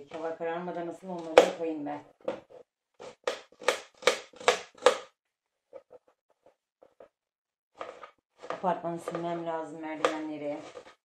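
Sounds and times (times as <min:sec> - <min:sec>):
knife chopping on cutting board: 0:03.0 - 0:05.1.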